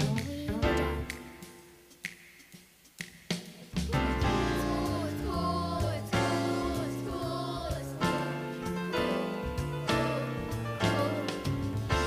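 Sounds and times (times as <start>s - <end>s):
musical accompaniment with bass line: 0.0s - 12.0s
voices singing: 3.9s - 12.0s.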